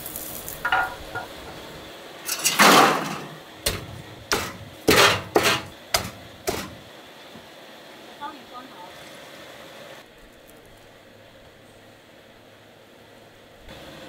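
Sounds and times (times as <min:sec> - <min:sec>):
meat cleaver chopping on wood: 0:03.6 - 0:06.8.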